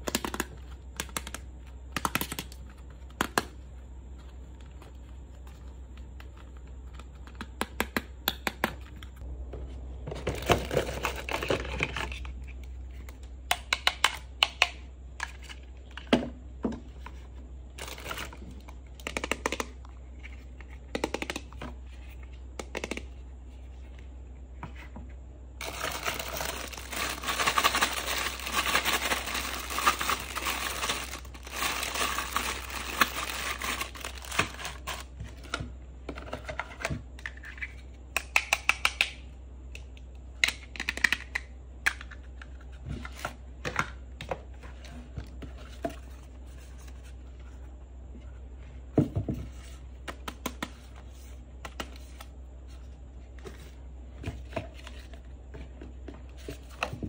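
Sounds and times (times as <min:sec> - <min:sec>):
packaging crinkling: 0:25.6 - 0:35.1.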